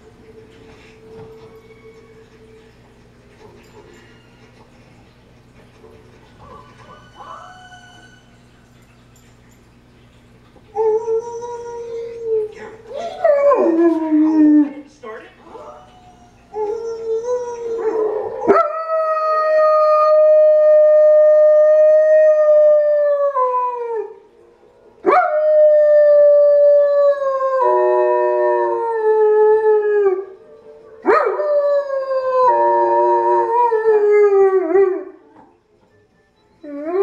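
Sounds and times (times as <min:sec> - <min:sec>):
wolves howling on tv: 0:00.0 - 0:09.2, 0:10.7 - 0:35.5, 0:36.6 - 0:37.0
dog howling: 0:06.4 - 0:08.8, 0:10.7 - 0:14.8, 0:15.5 - 0:24.2, 0:25.1 - 0:30.4.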